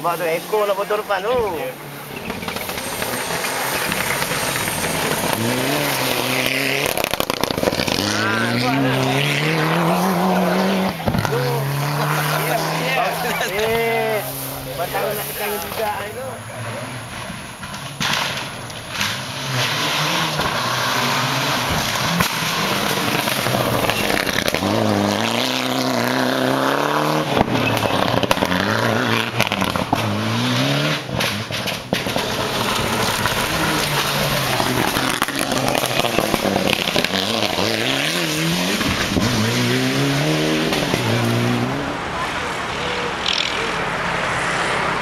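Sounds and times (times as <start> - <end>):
rally car engines at full throttle: 0.0 - 45.0
engine pops and bangs: 17.6 - 19.0, 31.1 - 37.1.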